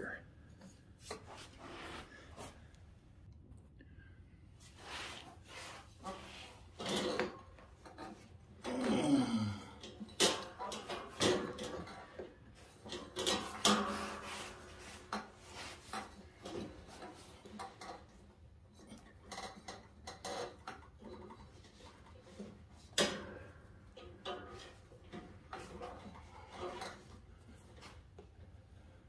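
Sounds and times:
metallic clunks and scraping: 0:04.7 - 0:08.4, 0:10.0 - 0:28.0.

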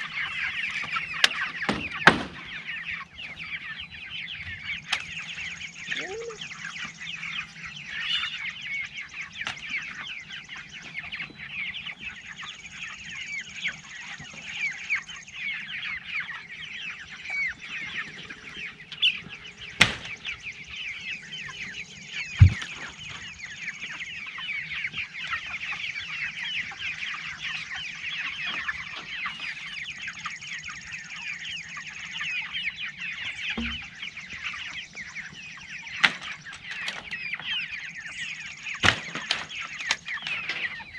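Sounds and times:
chickens peeping and chirping: 0:00.0 - 0:40.9
sharp knocks: 0:22.4 - 0:22.8, 0:33.6 - 0:34.0.

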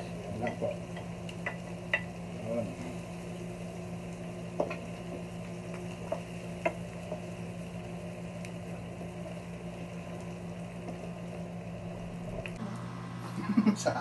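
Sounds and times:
garlic and onion sauteing in oil: 0:00.0 - 0:13.1
steady low hum: 0:00.0 - 0:14.0
spatula tapping pan: 0:00.4 - 0:02.2, 0:06.0 - 0:07.3.

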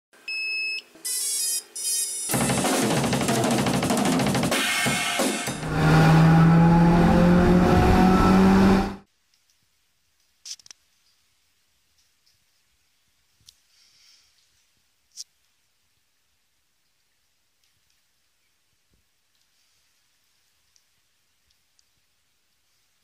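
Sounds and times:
intro music with drums and cymbals: 0:02.3 - 0:05.8.

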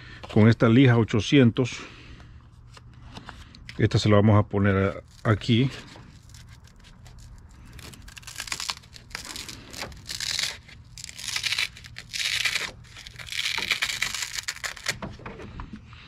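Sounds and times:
sandpaper tearing and rasping: 0:04.9 - 0:15.0.

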